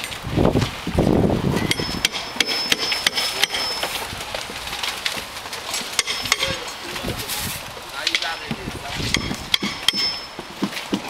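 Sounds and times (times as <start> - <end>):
hammers knocking on roof: 5.2 - 6.7, 8.0 - 11.0.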